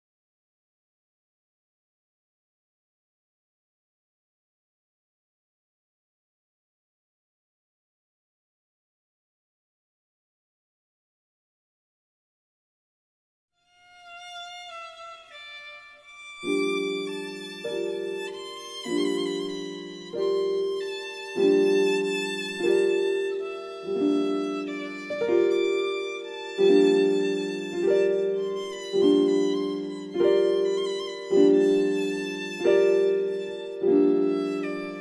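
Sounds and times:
slow instrumental chords: 16.5s - 35.0s.

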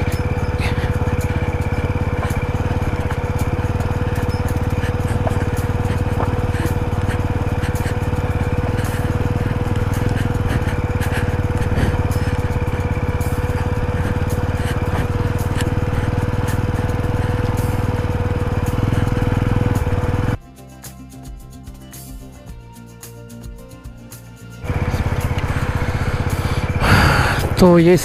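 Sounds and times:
motorcycle engine running: 0.0s - 20.4s, 24.6s - 28.0s
stones clicking under tyres: 0.0s - 20.4s.

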